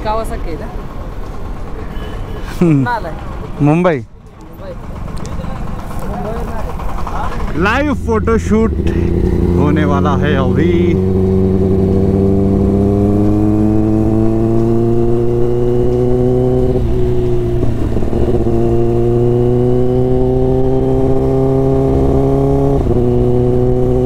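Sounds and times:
motorcycle engine accelerating: 2.6 - 24.0.

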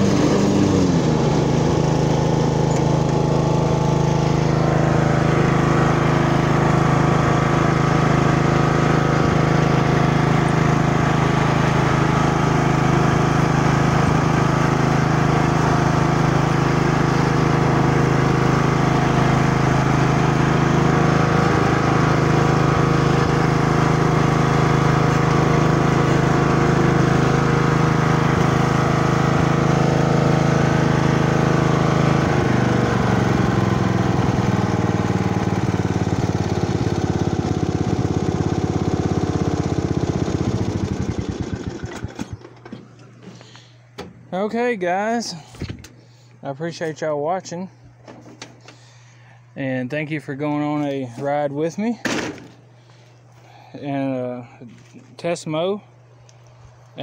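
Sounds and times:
blades cutting grass: 0.0 - 43.7
riding lawn mower engine running: 0.0 - 57.0.

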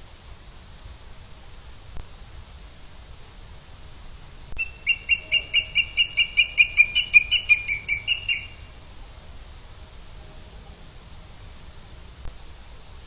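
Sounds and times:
eagle calling shrill notes: 4.6 - 8.7.

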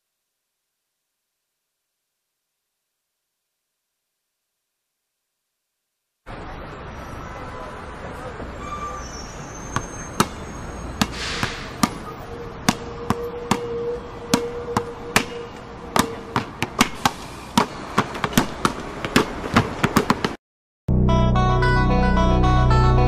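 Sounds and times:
basketball bouncing on wooden floor: 17.6 - 20.4
plucked string background music: 20.9 - 23.0.

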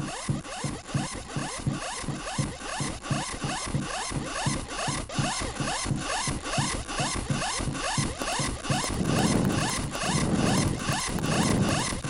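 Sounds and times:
rhythmic rasping: 0.1 - 12.0
low thumps: 8.1 - 12.0.

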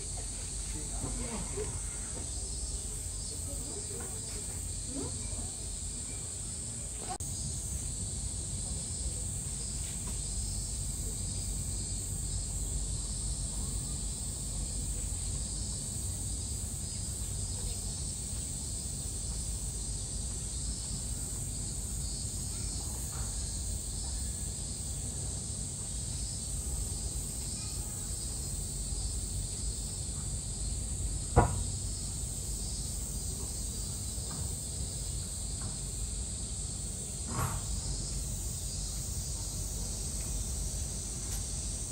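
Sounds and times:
cicadas droning: 0.0 - 41.9
sharp knock: 31.3 - 31.8.

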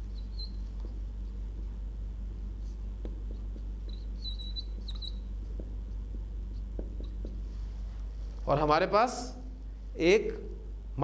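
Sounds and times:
whiteboard marker squeaking: 0.0 - 1.0, 3.3 - 5.6
steady low hum: 0.0 - 11.0.

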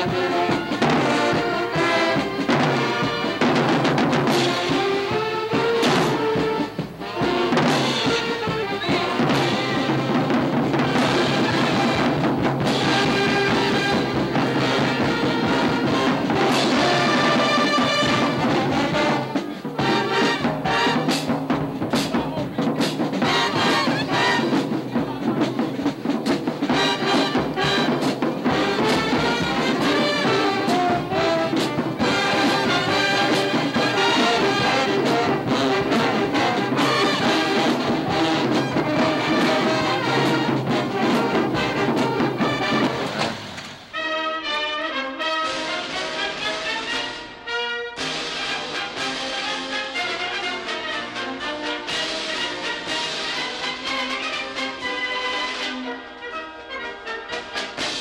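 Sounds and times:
drum hits: 0.0 - 43.9
brass band music: 0.0 - 58.0.

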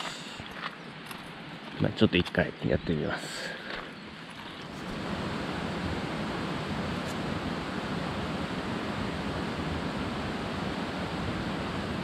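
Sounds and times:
river water rushing: 3.5 - 12.0.

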